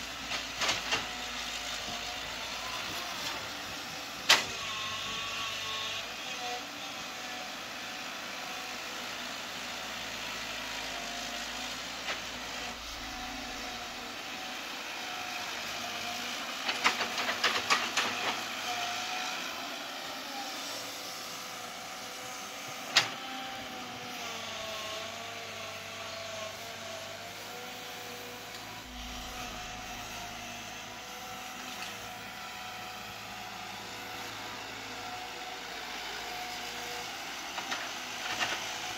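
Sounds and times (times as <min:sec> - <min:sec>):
excavator diesel engine running: 0:07.0 - 0:19.3, 0:20.2 - 0:38.9
hydraulic whine: 0:11.5 - 0:15.5, 0:26.1 - 0:37.0.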